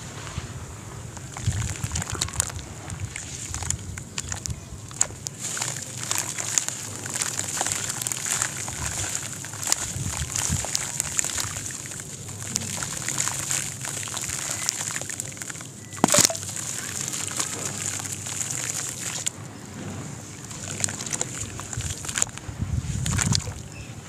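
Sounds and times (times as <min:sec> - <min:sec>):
grit pattering into water: 0:00.0 - 0:23.8
water sloshing: 0:00.0 - 0:23.8
sharp splash: 0:01.2 - 0:19.4.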